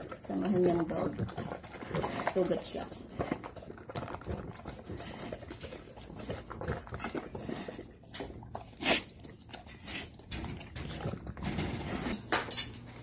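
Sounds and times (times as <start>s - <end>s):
dog chewing and crunching: 0.0s - 13.0s.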